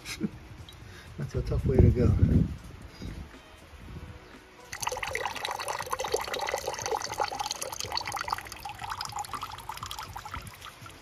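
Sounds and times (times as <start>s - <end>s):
liquid trickling into water: 4.7s - 11.0s.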